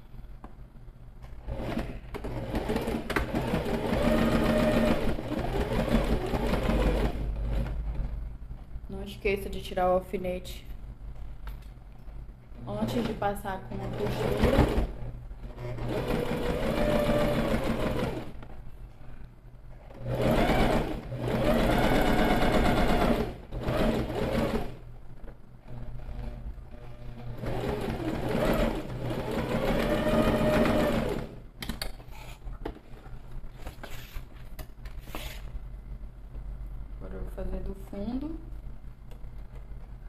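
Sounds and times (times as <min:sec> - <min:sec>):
sewing machine stitching: 0:01.5 - 0:08.2, 0:13.9 - 0:18.4, 0:20.0 - 0:24.8, 0:25.7 - 0:31.4.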